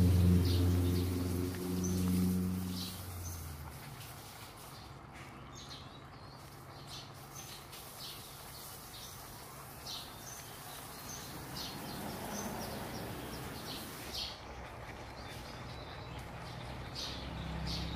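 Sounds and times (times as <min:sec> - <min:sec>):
low hum: 0:00.0 - 0:04.1
small birds chirping: 0:00.0 - 0:17.9.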